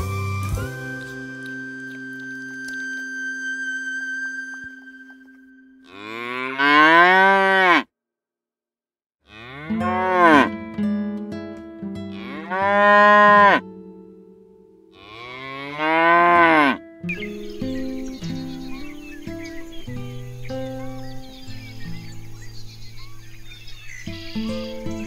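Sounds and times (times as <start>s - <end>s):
cow mooing: 5.8s - 7.9s, 9.3s - 10.5s, 12.1s - 13.6s, 14.9s - 16.9s.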